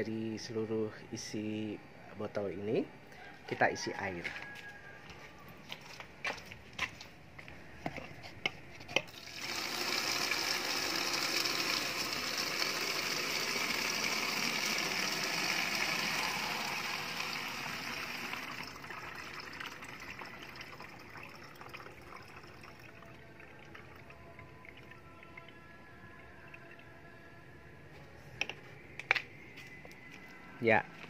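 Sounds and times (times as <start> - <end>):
water pouring into bottle: 9.1 - 25.6.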